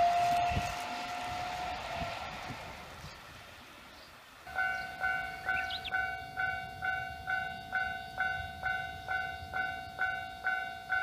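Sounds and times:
level crossing alarm bell ringing: 4.5 - 11.0.

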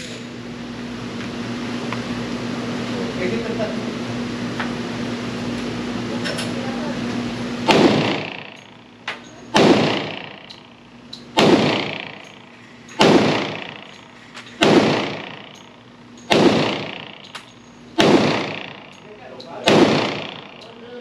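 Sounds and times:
pistol shots echoing: 7.6 - 8.8, 9.5 - 20.9.

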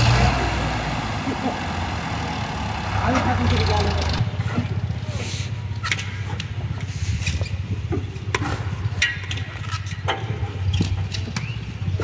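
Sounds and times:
tractor diesel engine idling: 0.0 - 5.6.

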